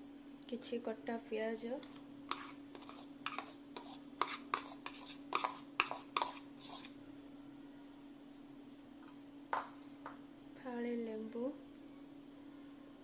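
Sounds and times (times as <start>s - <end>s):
steady low hum: 0.0s - 13.0s
metal spoon scraping plastic bowl: 1.8s - 7.0s.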